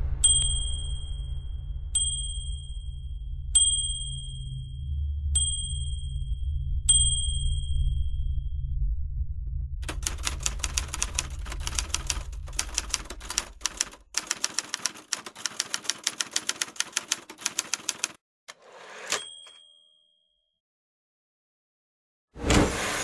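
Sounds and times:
low hum: 0.0s - 14.1s
typewriter bell ding: 0.2s - 1.2s, 2.0s - 2.8s, 3.6s - 4.5s, 9.8s - 18.1s, 18.8s - 20.3s
typewriter keys clacking: 9.8s - 18.2s
typewriter carriage swish: 9.8s - 19.5s.

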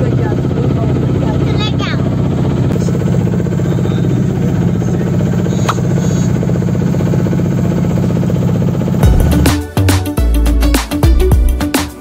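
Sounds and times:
water rushing along hull: 0.0s - 9.0s
boat engine drone: 0.0s - 10.7s
music: 9.0s - 12.0s.

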